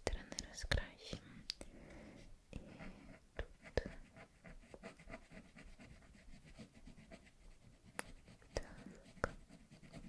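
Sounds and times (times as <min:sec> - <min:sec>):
colouring strokes scratching paper: 0:02.6 - 0:10.0.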